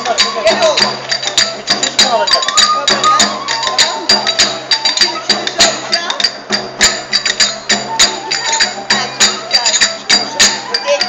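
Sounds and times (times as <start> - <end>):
hand-beaten frame drum: 0.0 - 11.0
clarinet melody: 7.8 - 11.0.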